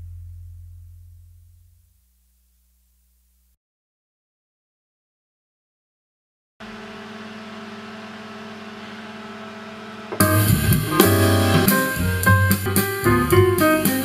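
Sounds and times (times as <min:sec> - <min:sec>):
quiet held chord: 0:10.1 - 0:13.8
band with drums and guitar: 0:10.1 - 0:14.0.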